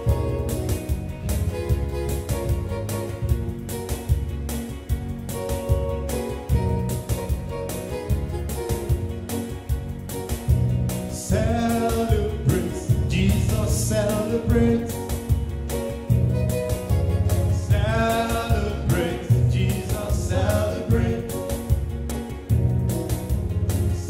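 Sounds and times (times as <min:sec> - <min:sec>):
instrumental backing with steady beat: 0:00.0 - 0:24.0
man singing gospel song: 0:11.1 - 0:15.6, 0:17.4 - 0:21.8.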